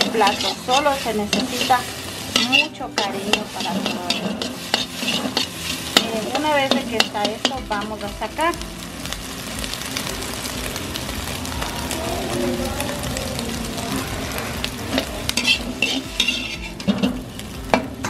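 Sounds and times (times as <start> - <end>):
metal skimmer scraping a wok: 0.0 - 8.1, 14.3 - 18.0
eggs sizzling in oil: 0.0 - 18.0.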